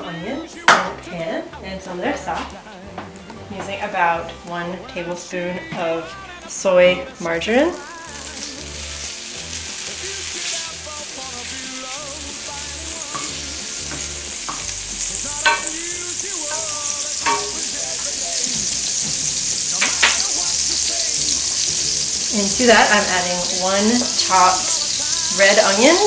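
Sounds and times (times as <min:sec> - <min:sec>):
margarine sizzling in a skillet: 0:05.6 - 0:26.0.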